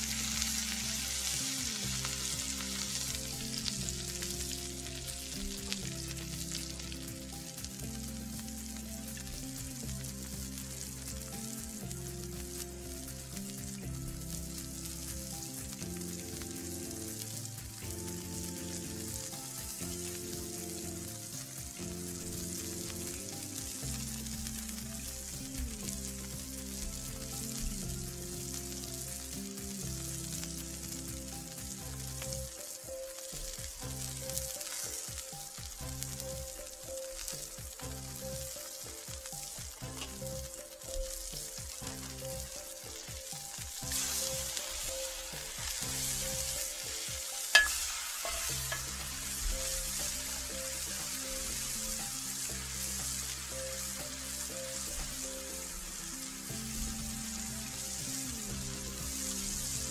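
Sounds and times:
burger patties sizzling: 0.0s - 59.9s
metal spatula clacking on griddle: 47.5s - 49.0s.

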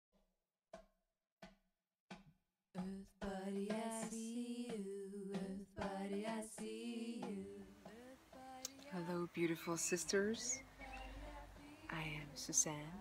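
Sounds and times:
soft hand drum beats: 0.8s - 13.0s
woman singing long notes: 2.8s - 13.0s.

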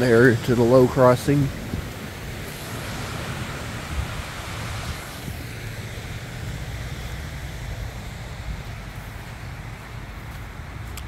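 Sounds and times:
water rushing down spillway: 0.0s - 11.0s
wind rumbling on microphone: 0.0s - 11.0s.

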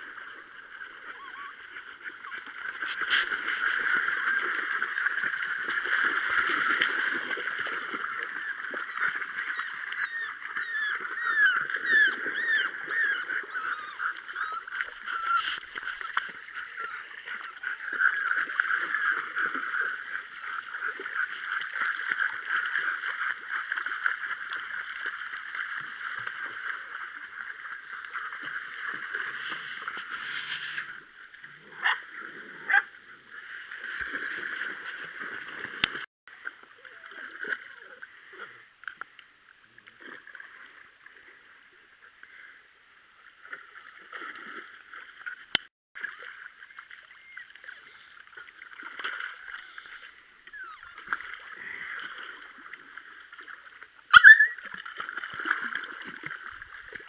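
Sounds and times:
stream water rushing and splashing: 0.0s - 38.2s.

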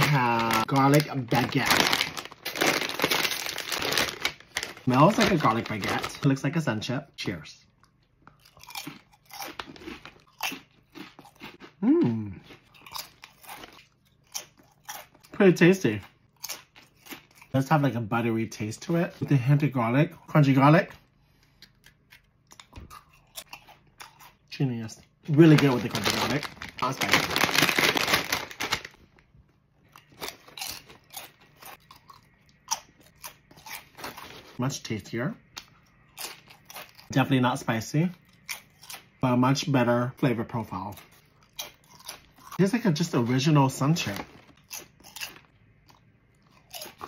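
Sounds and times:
chips crunching while chewed: 0.0s - 6.3s, 7.8s - 15.4s, 16.0s - 17.7s, 25.3s - 29.0s, 29.9s - 34.6s, 40.8s - 42.6s, 43.8s - 47.0s
foil bag crinkling: 0.0s - 6.4s, 25.3s - 29.2s, 43.8s - 44.6s
person humming: 11.8s - 12.4s.

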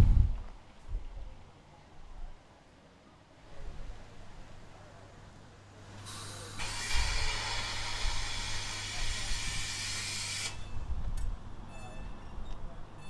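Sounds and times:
compressed air hissing: 6.0s - 10.6s.

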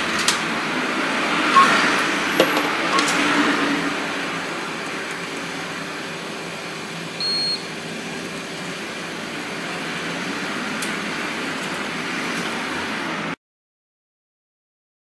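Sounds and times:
high electronic beep: 1.5s - 3.3s, 7.2s - 7.6s.

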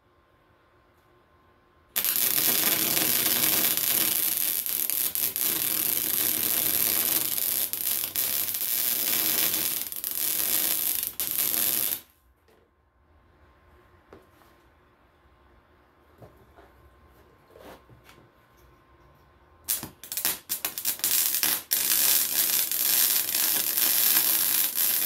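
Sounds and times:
welding arc crackling and hissing: 2.0s - 12.1s, 19.7s - 25.0s.

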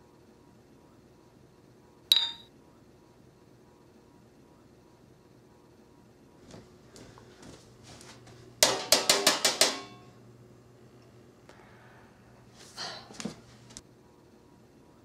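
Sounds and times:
metal spoon clanging on baking sheet: 8.6s - 10.2s.

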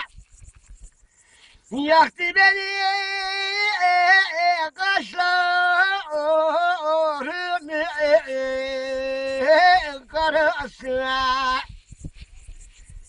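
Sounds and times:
elderly man singing unaccompanied: 1.7s - 11.7s.

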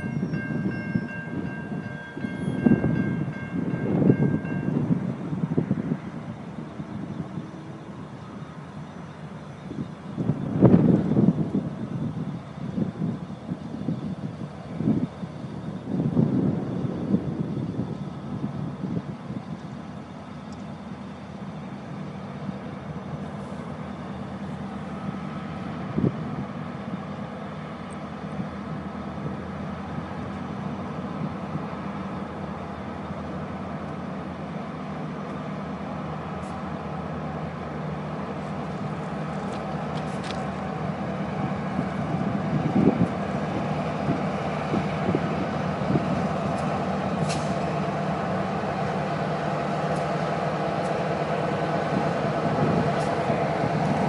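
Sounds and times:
wind buffeting microphone: 0.0s - 8.0s, 9.6s - 19.8s, 38.7s - 54.0s
diesel locomotives droning: 0.0s - 54.0s.

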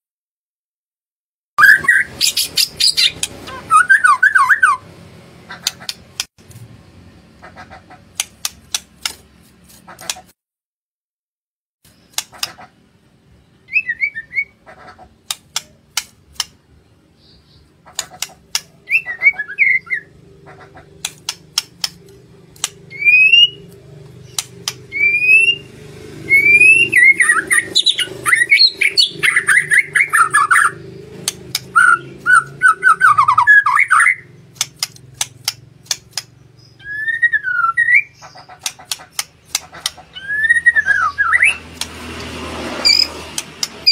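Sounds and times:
bird singing: 1.6s - 4.9s, 13.1s - 14.6s, 16.7s - 41.8s, 42.8s - 43.9s.

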